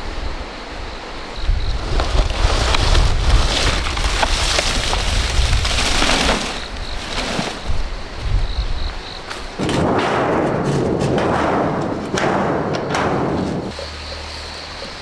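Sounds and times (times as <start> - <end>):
dry fronds scraping on ground: 1.4 - 8.4
wind buffeting microphone: 1.4 - 13.7.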